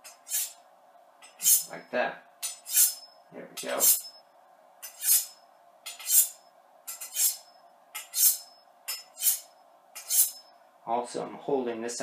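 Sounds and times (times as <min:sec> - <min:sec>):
knife on honing rod ringing swish: 0:02.4 - 0:04.2, 0:07.0 - 0:10.5.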